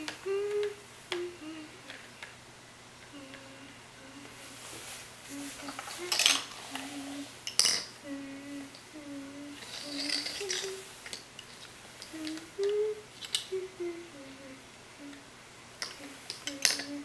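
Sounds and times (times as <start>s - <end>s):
child humming: 0.0s - 2.0s, 3.1s - 4.6s, 5.3s - 7.4s, 8.0s - 10.9s, 12.0s - 15.2s, 16.0s - 17.0s.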